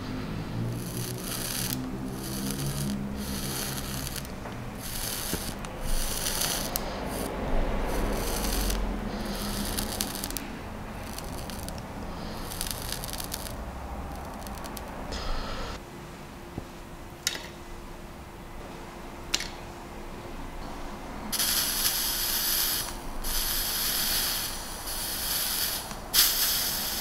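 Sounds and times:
food sizzling on heated coil: 0.6 - 15.0, 21.3 - 27.0.

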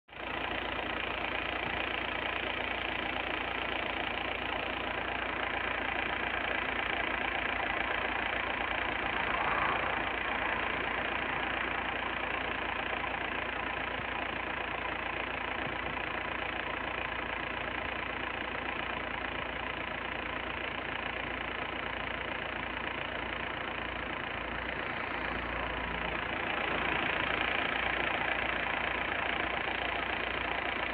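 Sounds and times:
power plant mechanical drone: 8.6 - 12.4, 24.3 - 28.8.

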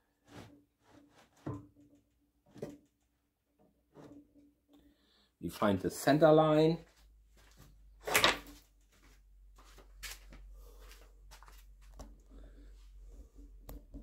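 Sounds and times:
faint clicks and knocks: 13.5 - 14.0.

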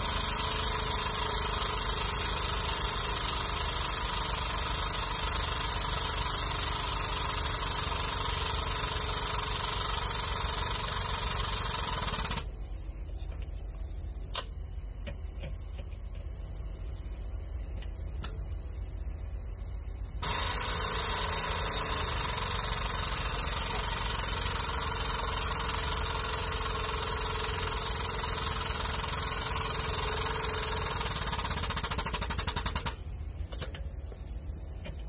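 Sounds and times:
hydraulic pump running: 0.0 - 12.5, 20.2 - 33.8.

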